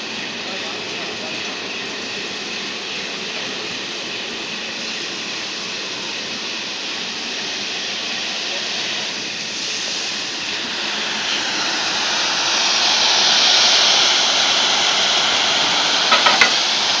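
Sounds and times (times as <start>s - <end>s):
welding head rushing hiss: 9.3s - 17.0s.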